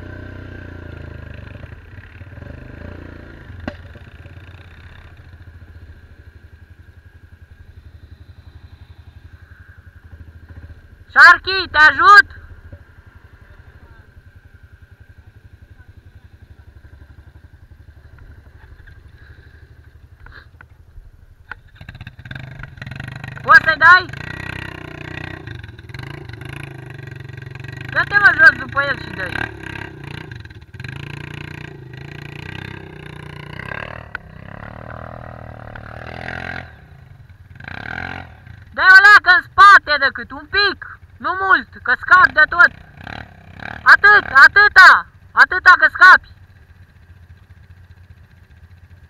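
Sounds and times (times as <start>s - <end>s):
atv engine chugging: 0.0s - 49.0s
faint steady whine: 5.2s - 11.2s.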